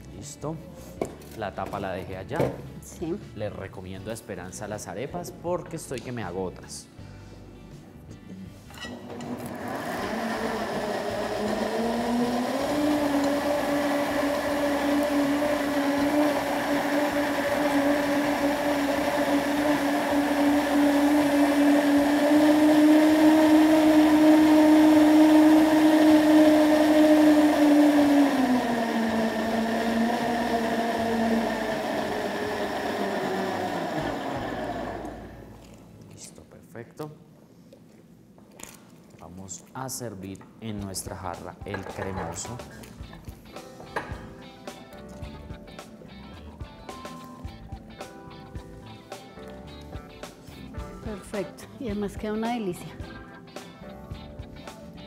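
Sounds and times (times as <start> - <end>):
blender motor running: 8.9 - 35.6.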